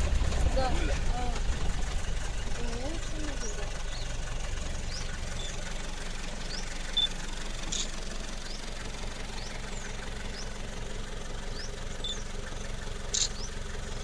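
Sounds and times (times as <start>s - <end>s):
vehicle engine idling: 0.0s - 14.0s
bird chirping: 2.3s - 5.6s, 6.4s - 10.7s, 11.4s - 13.6s.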